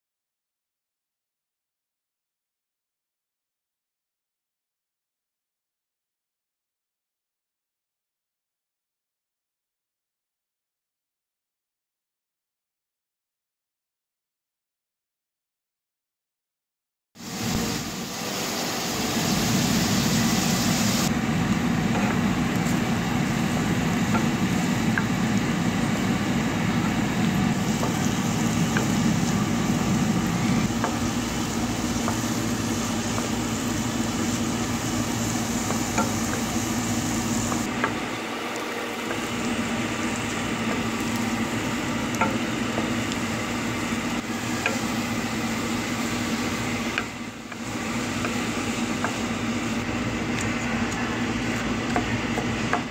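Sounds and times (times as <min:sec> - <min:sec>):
food sizzling in oil: 0:17.2 - 0:52.9.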